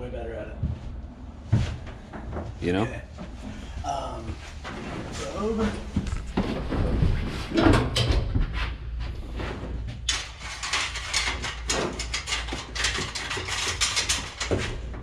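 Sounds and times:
steady low hum: 0:00.0 - 0:15.0
metal parts clattering: 0:10.1 - 0:14.9.

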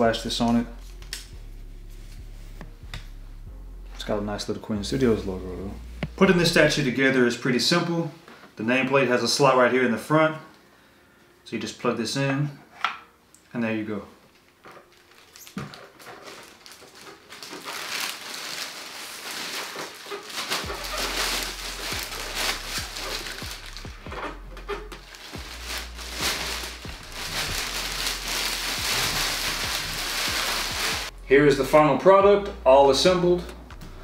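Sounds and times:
plastic bag crinkling: 0:14.4 - 0:31.1.

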